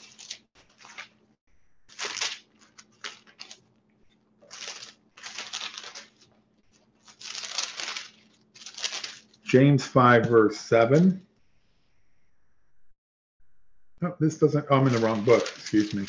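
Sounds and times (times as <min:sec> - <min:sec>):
thin pages turning: 0:00.0 - 0:01.2, 0:01.8 - 0:09.5, 0:14.7 - 0:16.0.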